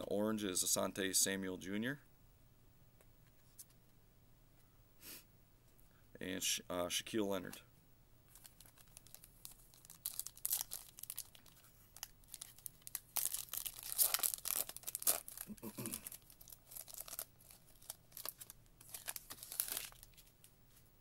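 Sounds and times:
foil wrapper tearing and crinkling: 0:08.3 - 0:20.3.

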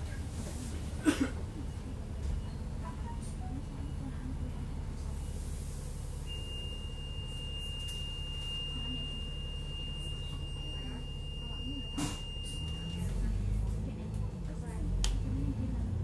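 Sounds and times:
bus running rumble: 0:00.0 - 0:16.0
high-pitched beep: 0:06.3 - 0:13.0.

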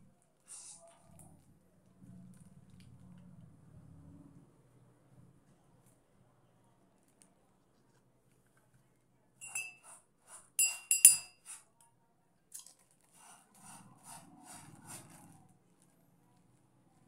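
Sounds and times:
metal spoon clinking: 0:09.4 - 0:09.8, 0:10.6 - 0:11.4.

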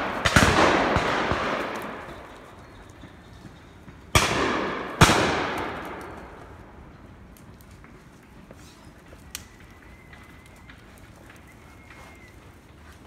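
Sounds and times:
shotgun shots echoing: 0:00.0 - 0:02.4, 0:04.1 - 0:06.5.

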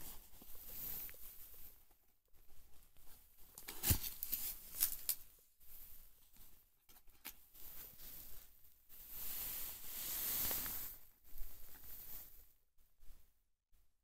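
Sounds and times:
cardboard scraping and rustling: 0:03.6 - 0:05.0.

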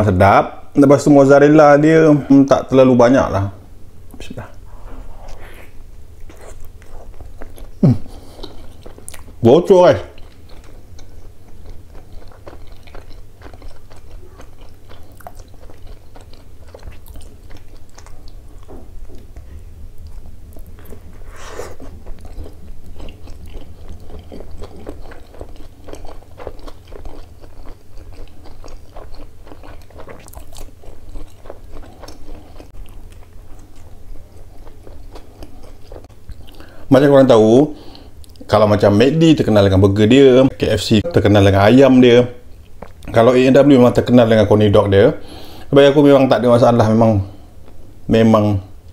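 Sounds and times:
person chewing food: 0:04.5 - 0:09.4, 0:10.1 - 0:36.8, 0:42.5 - 0:43.2, 0:47.4 - 0:48.0.

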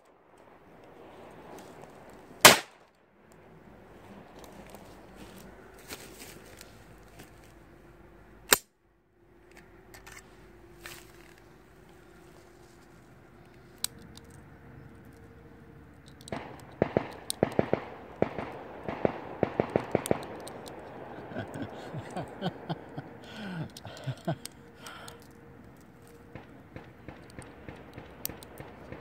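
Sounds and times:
handgun shots echoing: 0:02.4 - 0:02.8, 0:16.3 - 0:21.6.

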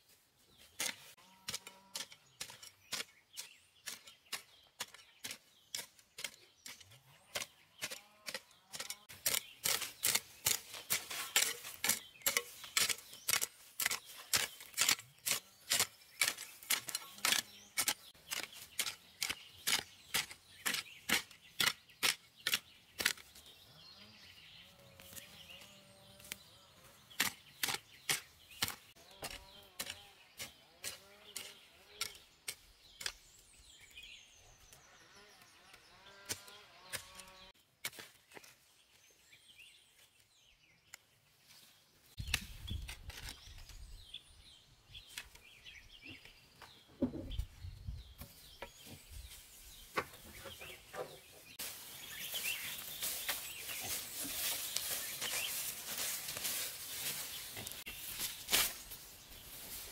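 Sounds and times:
hoe chopping into soil: 0:57.5 - 0:58.9.

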